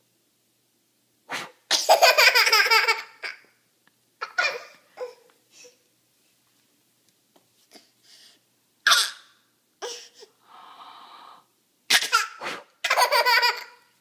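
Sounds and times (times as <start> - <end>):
toddler laughing: 1.9 - 3.4, 4.2 - 5.2, 11.9 - 13.9.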